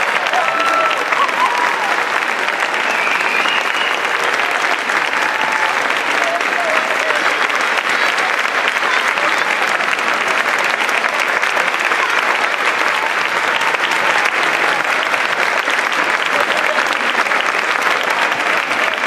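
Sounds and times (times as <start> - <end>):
crowd applauding: 0.0 - 19.0.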